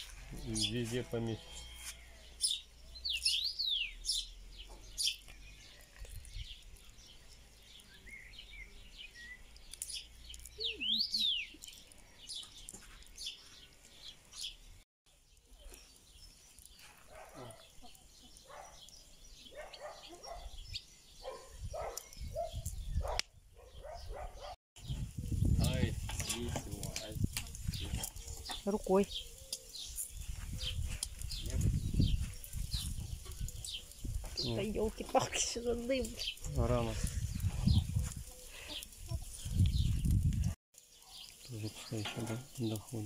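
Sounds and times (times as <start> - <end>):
birds chirping and calling: 0.0 - 43.0
whistled bird notes: 7.8 - 12.5.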